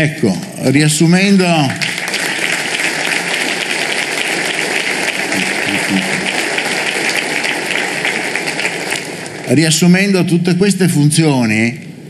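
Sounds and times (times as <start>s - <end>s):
audience applauding: 1.8s - 9.6s.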